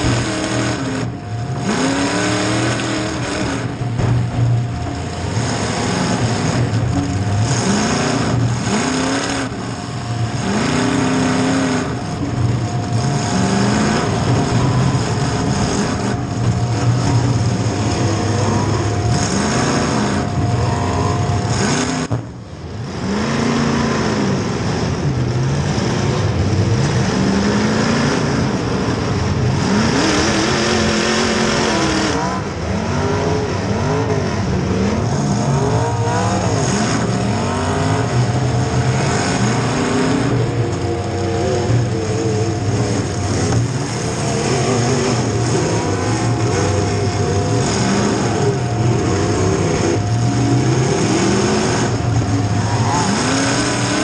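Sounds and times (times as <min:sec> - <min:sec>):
car engine revving: 0:00.0 - 0:54.0
steady high whine: 0:00.0 - 0:54.0.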